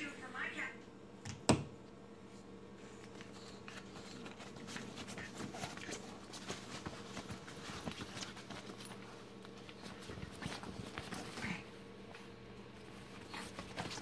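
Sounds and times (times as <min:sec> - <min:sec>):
dogs scuffling: 0:02.8 - 0:14.0.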